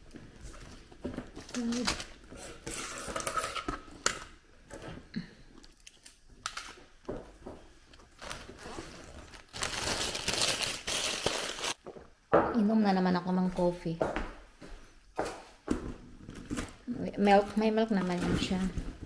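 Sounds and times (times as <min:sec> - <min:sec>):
plastic bag crinkling: 0:08.1 - 0:11.8.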